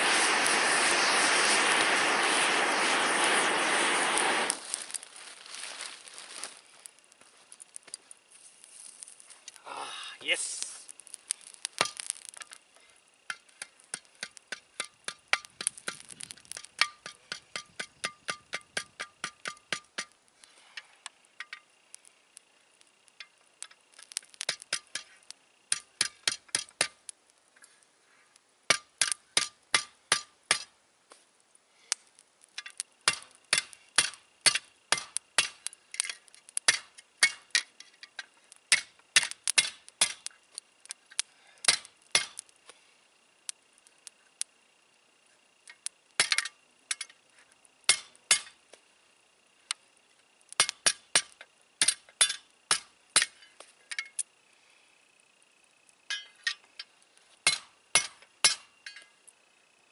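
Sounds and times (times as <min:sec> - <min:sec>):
hammer striking hot metal: 0:13.3 - 0:20.2, 0:24.4 - 0:27.0, 0:28.7 - 0:30.7, 0:32.6 - 0:37.7, 0:38.7 - 0:40.3, 0:41.7 - 0:42.4, 0:46.2 - 0:47.1, 0:47.9 - 0:48.6, 0:50.6 - 0:54.2, 0:56.1 - 0:56.6, 0:57.4 - 0:59.1.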